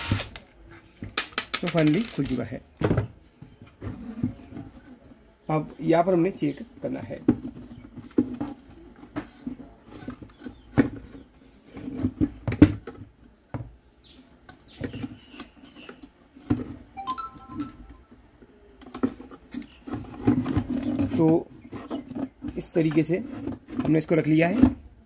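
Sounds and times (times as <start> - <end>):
short steady tone: 17.0 - 18.2.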